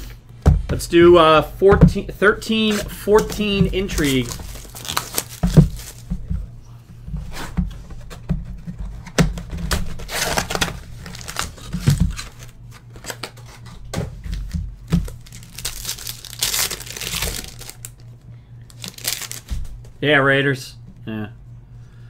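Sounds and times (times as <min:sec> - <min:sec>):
low steady hum: 0:00.0 - 0:22.0
cardboard and packs rustling: 0:01.0 - 0:06.5, 0:07.2 - 0:18.0, 0:18.7 - 0:19.8
plastic wrap crinkling and tearing: 0:02.7 - 0:06.1, 0:09.7 - 0:13.6, 0:14.8 - 0:18.1, 0:18.7 - 0:19.6.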